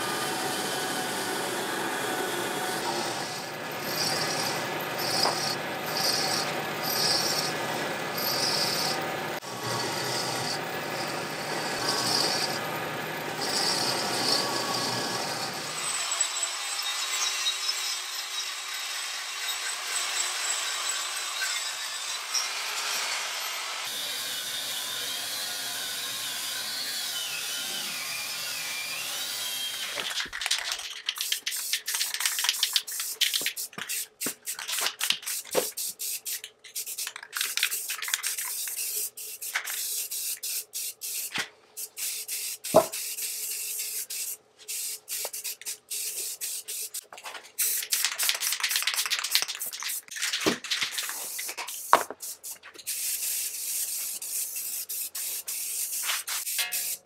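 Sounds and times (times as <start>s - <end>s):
angle grinder whining on metal: 0.0s - 30.0s
spray cans hissing: 30.0s - 57.0s.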